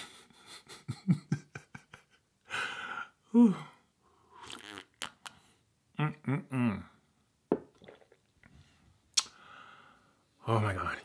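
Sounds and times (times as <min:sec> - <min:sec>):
man laughing breathily: 0:00.0 - 0:03.6
sipping from a mug: 0:04.4 - 0:05.2
mouth clicks: 0:04.4 - 0:05.4, 0:09.1 - 0:09.4.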